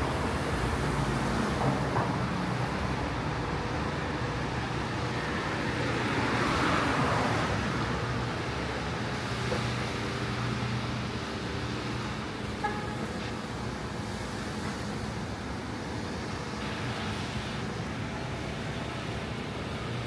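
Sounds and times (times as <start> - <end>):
traffic hum: 0.0 - 20.0
low engine drone: 7.6 - 20.0.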